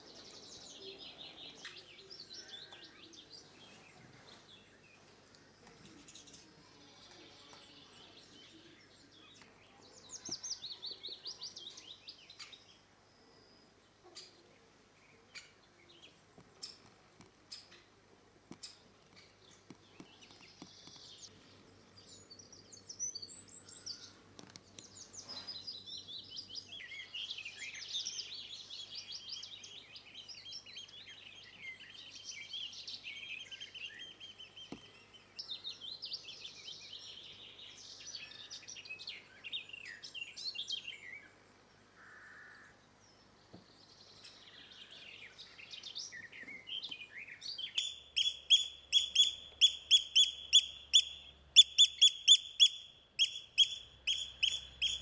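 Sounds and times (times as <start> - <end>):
songbirds singing and chirping: 0.0 - 55.0
oystercatcher loud piping call: 47.8 - 55.0.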